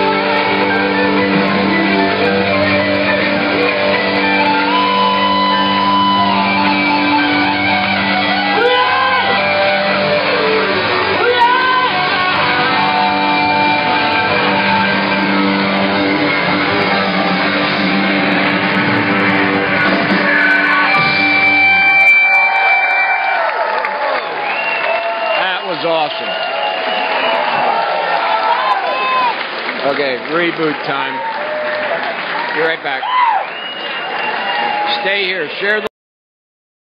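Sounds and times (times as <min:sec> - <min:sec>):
electric guitar sliding notes: 0:00.0 - 0:23.3
live rock band playing: 0:00.0 - 0:23.3.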